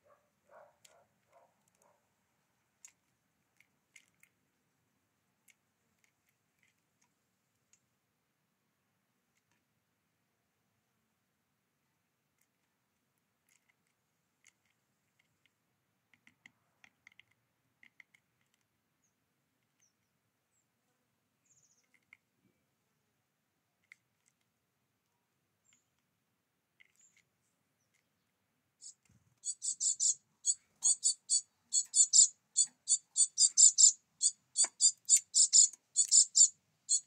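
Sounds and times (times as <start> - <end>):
bird pecking seeds: 0.3 - 20.6, 21.4 - 37.0
high bird chirps: 28.8 - 37.0.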